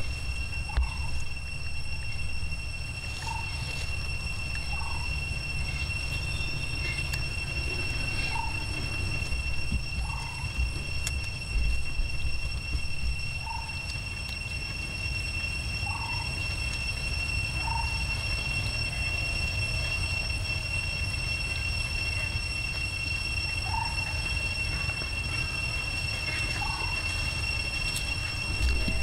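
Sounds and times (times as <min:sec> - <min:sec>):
low rumble: 0:00.0 - 0:13.9
high-pitched tonal whine: 0:00.0 - 0:29.0.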